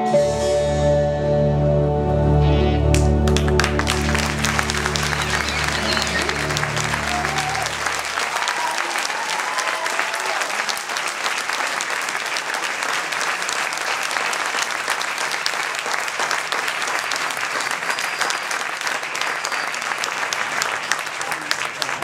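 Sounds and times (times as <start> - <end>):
audience applauding: 2.9 - 22.0
voices cheering: 3.3 - 12.4.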